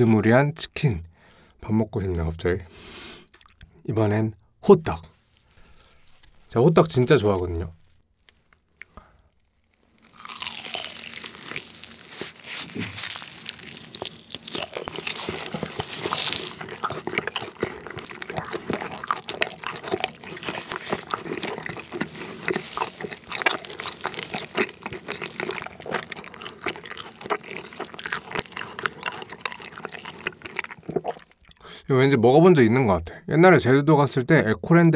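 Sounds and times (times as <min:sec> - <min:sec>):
chewing sticky rice cake: 0:03.2 - 0:03.7, 0:05.3 - 0:31.6.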